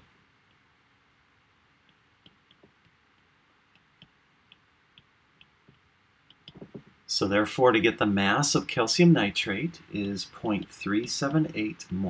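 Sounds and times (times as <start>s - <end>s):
stylus tapping glass screen: 1.8s - 7.0s.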